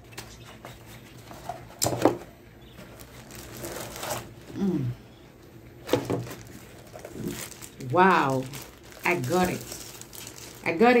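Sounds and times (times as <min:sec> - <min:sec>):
paper-pulp packaging scraping: 0:02.8 - 0:04.5, 0:05.8 - 0:11.0.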